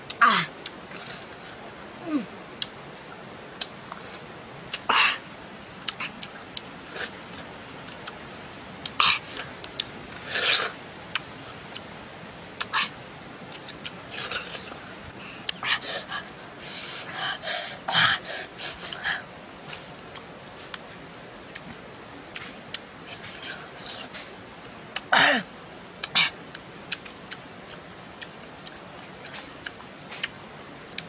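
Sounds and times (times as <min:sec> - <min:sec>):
wet chewing and crunching: 0:26.0 - 0:30.4.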